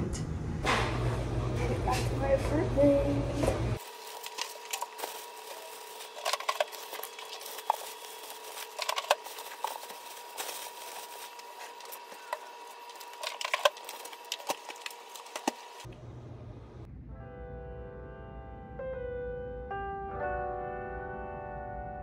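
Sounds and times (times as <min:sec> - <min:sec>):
plastic bags rustling: 0:03.8 - 0:15.9.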